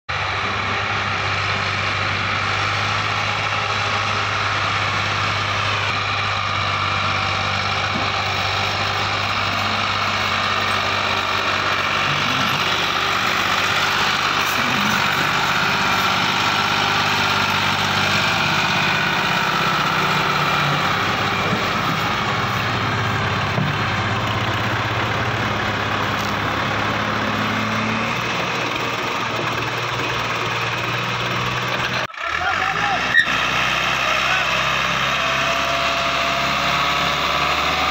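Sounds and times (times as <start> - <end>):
tractor diesel engine under load: 0.1 - 37.9.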